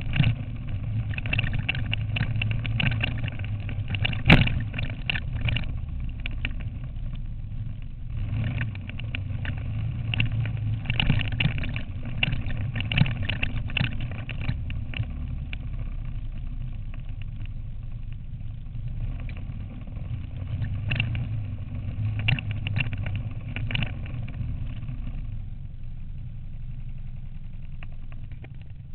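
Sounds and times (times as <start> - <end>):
knocks and rattles: 0.0 - 15.7, 20.4 - 24.9
quad bike engine running: 0.0 - 28.9.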